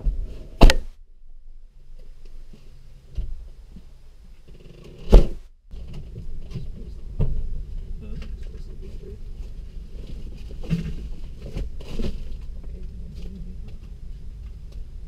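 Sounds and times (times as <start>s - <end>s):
low rumbling and handling noise: 0.0s - 15.0s
car door thud: 5.1s - 5.4s.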